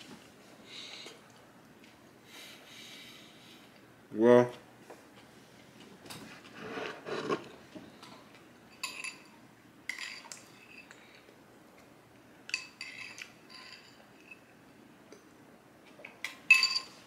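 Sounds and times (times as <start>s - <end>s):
soft scraping: 5.3s - 7.7s
spoon clinking against bowl: 16.5s - 17.0s.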